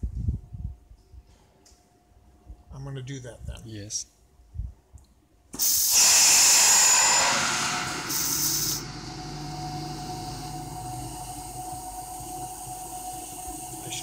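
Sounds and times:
air hissing into vessel: 5.6 - 11.5
machine hum: 5.6 - 14.0.

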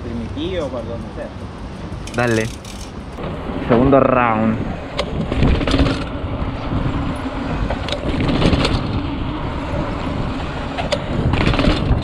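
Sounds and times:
bike clicks and knocks: 2.0 - 3.2, 7.6 - 9.0, 10.7 - 12.0
bike rumbling down steps: 5.0 - 12.0.

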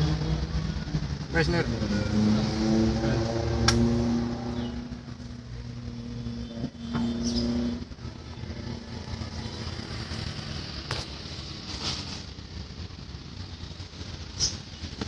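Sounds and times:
vehicle rumble inside cabin: 0.0 - 15.0.

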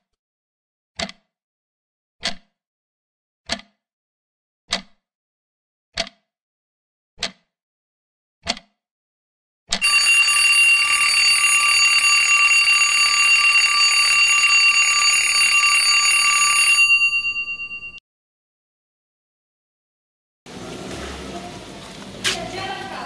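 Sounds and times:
alarm ringing shrilly: 9.8 - 18.0.

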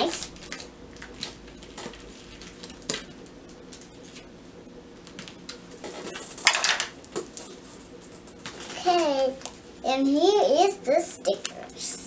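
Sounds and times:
packaging crinkling: 0.0 - 3.0.

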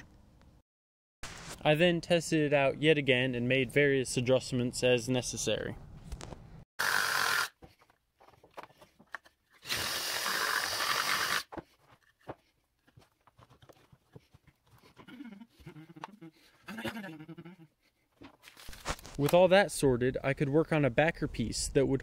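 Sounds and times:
cordless drill drilling into wood: 6.8 - 7.6, 9.6 - 11.5
clicks and knocks of wood and tools: 7.6 - 9.6, 11.5 - 14.9.

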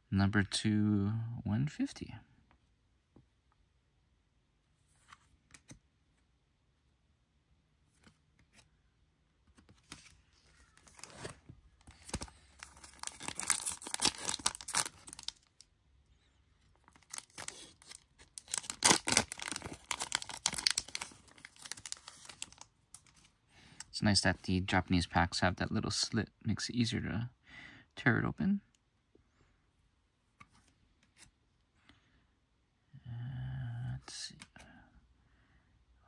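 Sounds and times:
wrapper crinkling and ripping: 10.7 - 15.7, 16.8 - 23.2.

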